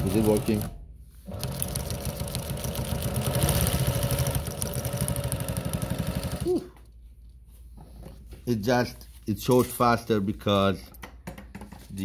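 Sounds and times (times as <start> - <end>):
sewing machine stitching: 0.0 - 6.5.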